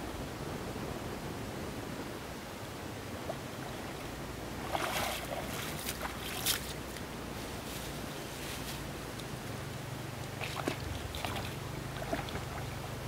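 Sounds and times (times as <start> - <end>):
low background noise: 0.0 - 13.0
feet splashing in shallow water: 4.6 - 7.1, 10.2 - 13.0.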